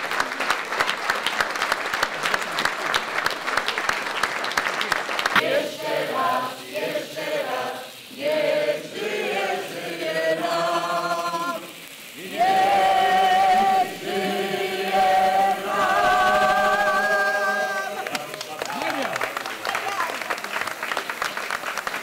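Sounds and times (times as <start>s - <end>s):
group of people singing: 5.4s - 18.2s.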